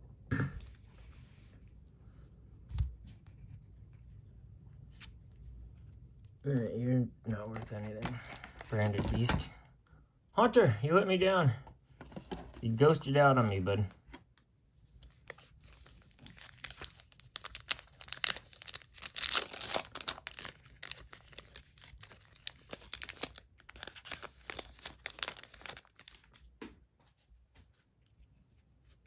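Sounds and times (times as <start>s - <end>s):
foil wrapper tearing and crinkling: 15.2s - 26.4s.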